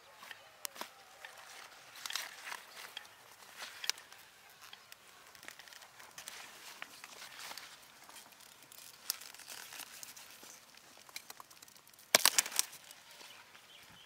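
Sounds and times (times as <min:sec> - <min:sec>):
leaves rustling: 0:00.0 - 0:14.0
broccoli stems snapping: 0:00.6 - 0:03.0, 0:04.8 - 0:13.0.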